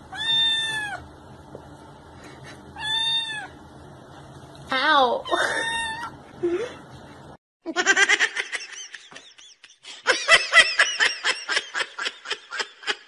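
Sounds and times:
person laughing: 5.3s - 5.8s, 6.4s - 6.8s, 7.7s - 13.0s.

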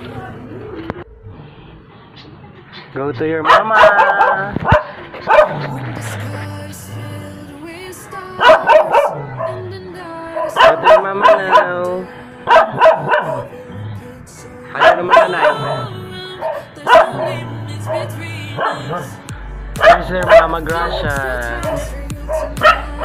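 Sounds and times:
dog barking: 3.4s - 5.7s, 8.4s - 9.7s, 10.3s - 11.9s, 12.5s - 13.6s, 14.7s - 19.2s, 19.8s - 20.6s, 21.6s - 23.0s
pop music: 3.8s - 23.0s.

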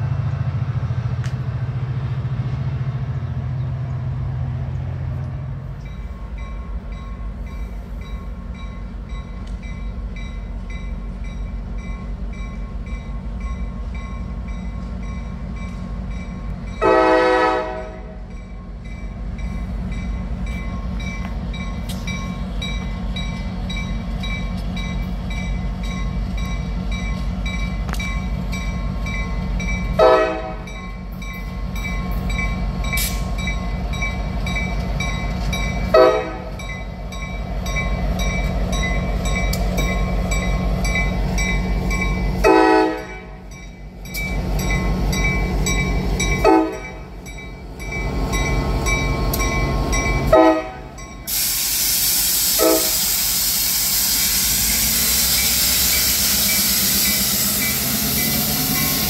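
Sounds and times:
diesel locomotive engine rumbling: 0.0s - 59.0s
locomotive horn blasts: 16.8s - 18.3s, 30.0s - 30.8s, 35.9s - 36.6s, 42.4s - 43.5s, 46.4s - 47.0s, 50.2s - 51.0s, 52.5s - 53.0s.

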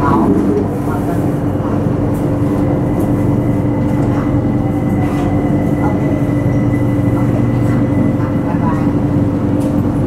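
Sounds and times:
train rumble: 0.0s - 10.0s.

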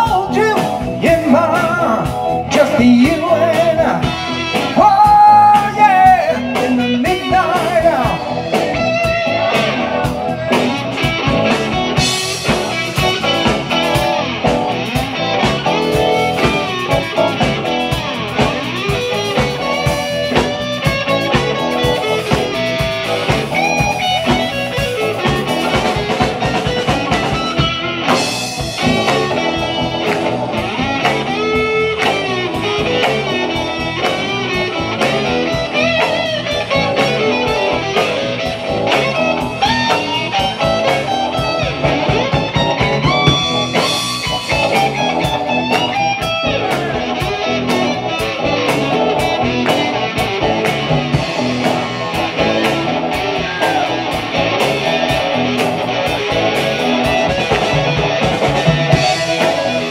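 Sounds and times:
drum kit beat: 0.0s - 59.9s
electric guitar lines: 0.0s - 59.9s.

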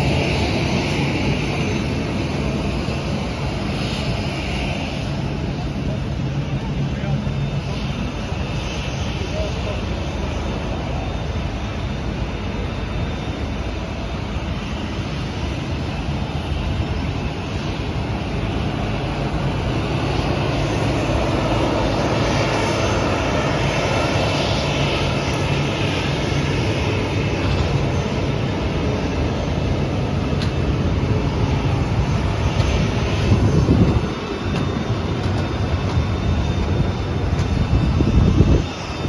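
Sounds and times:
high jet whine: 0.0s - 39.0s
jet aircraft roar: 0.0s - 39.0s.

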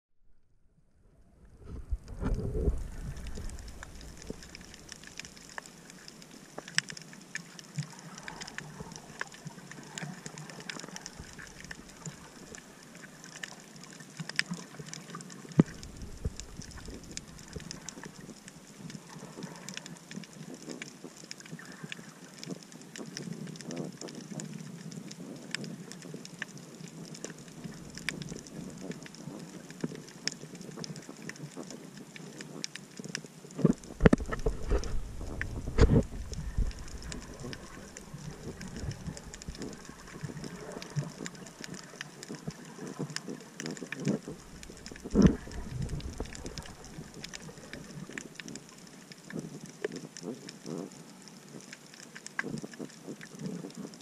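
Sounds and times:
underwater crackle of clicks: 1.4s - 54.0s
low underwater thumps: 1.5s - 4.8s, 15.6s - 17.8s, 33.7s - 40.5s, 44.3s - 47.7s.

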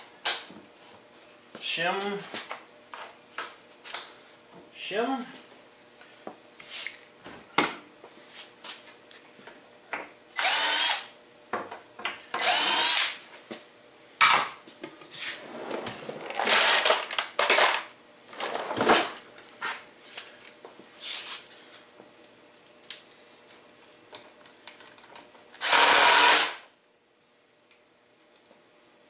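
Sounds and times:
cordless drill motor whine: 10.4s - 11.1s, 12.4s - 13.2s, 25.6s - 26.6s.

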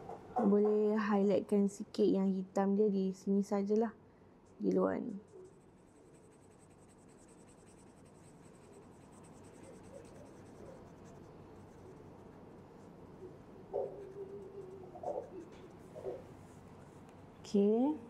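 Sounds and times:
marker scribbling on paper: 5.2s - 17.0s.

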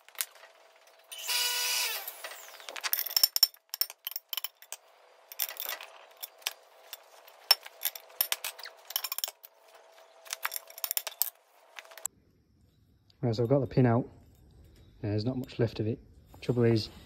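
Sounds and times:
steel pins clinking: 2.4s - 12.1s.

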